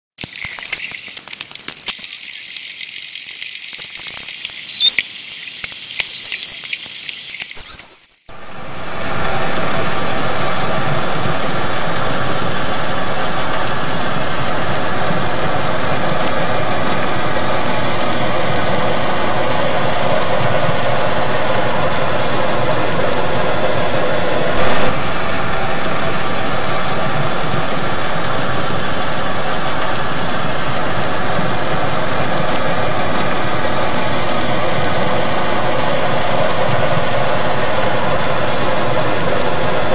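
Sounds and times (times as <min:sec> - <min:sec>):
dolphins whistling and clicking: 0:00.2 - 0:08.3
underwater vessel hum: 0:00.2 - 0:39.9.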